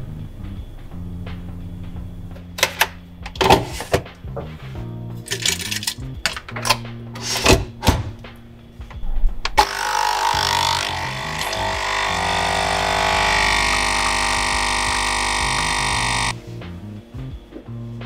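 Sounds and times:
background music with bass line: 0:00.0 - 0:18.0
coffee machine pump whirring: 0:09.6 - 0:16.4.

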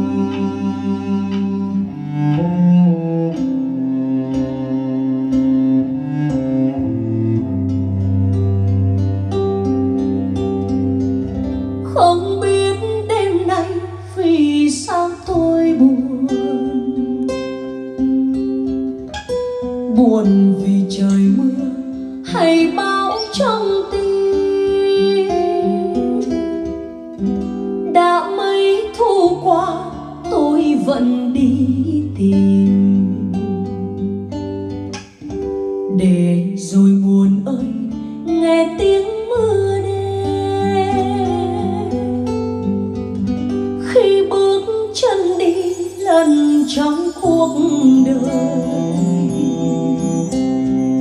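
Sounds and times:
plucked acoustic guitar: 0:00.0 - 0:51.0
person singing: 0:11.7 - 0:18.1, 0:19.9 - 0:26.8, 0:27.9 - 0:34.0, 0:35.9 - 0:42.3, 0:43.8 - 0:51.0.

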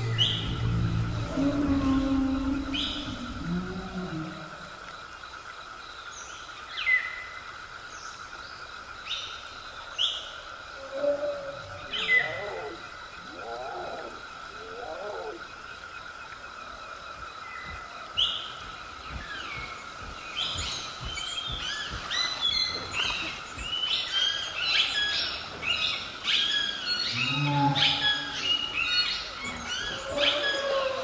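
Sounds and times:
low animal call: 0:00.0 - 0:04.8
birds chirping: 0:00.0 - 0:05.2, 0:11.1 - 0:31.0.

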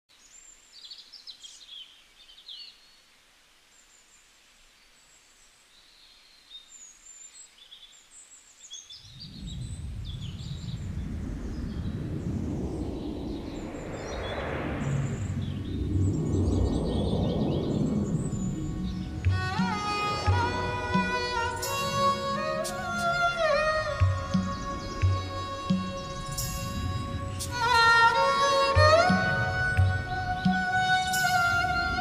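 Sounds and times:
small birds chirping: 0:00.1 - 0:31.2
low even rumbling: 0:09.1 - 0:32.0.

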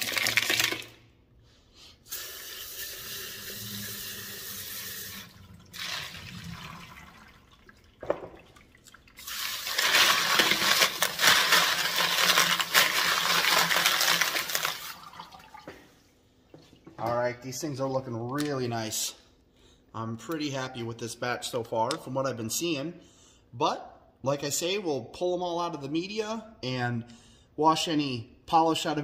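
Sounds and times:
tap water running: 0:00.0 - 0:01.0, 0:02.1 - 0:15.9.

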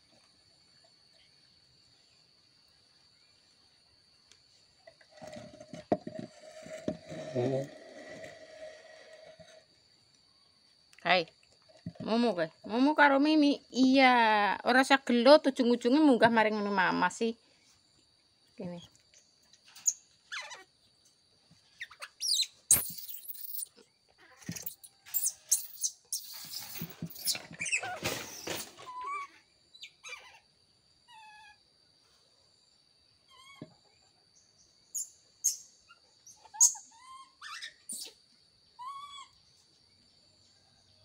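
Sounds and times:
baby monkey squeaky calls: 0:19.8 - 0:20.7, 0:21.8 - 0:30.4, 0:33.3 - 0:33.6, 0:35.0 - 0:38.2, 0:38.8 - 0:39.4.

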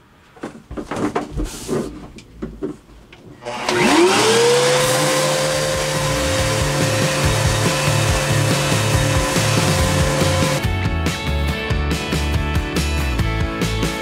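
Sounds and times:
orbital sander whining: 0:03.4 - 0:10.6.

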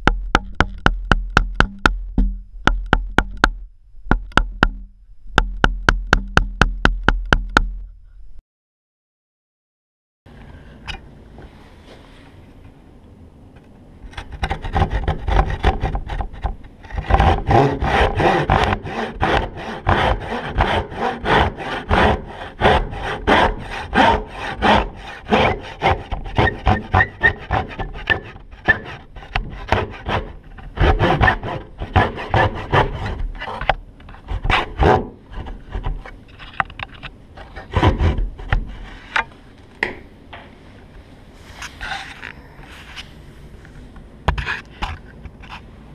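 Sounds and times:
hand saw cutting wood: 0:14.3 - 0:36.5, 0:37.4 - 0:39.2.

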